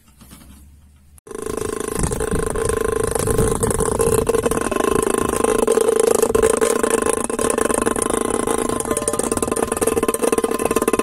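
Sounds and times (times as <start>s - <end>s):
rattling buzz of vibrating tin can: 1.3s - 11.0s.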